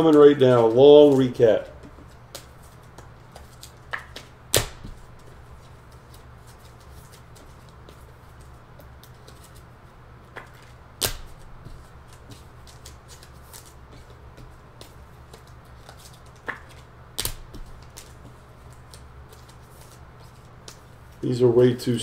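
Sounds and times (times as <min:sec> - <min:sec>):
cards rustling: 0:00.0 - 0:09.7, 0:10.4 - 0:21.3
steady low hum: 0:00.0 - 0:22.0.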